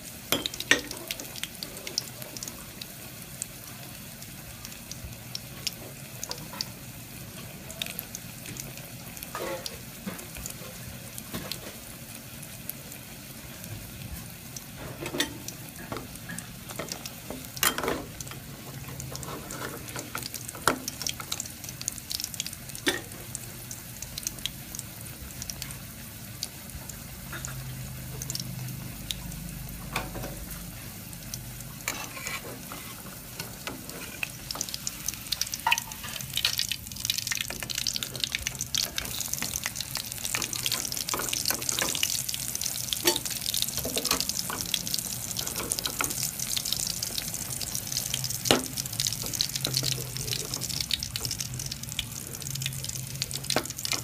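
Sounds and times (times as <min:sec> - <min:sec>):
food sizzling in hot oil: 0:00.0 - 0:54.0
metal spatula scraping a wok: 0:31.8 - 0:34.3.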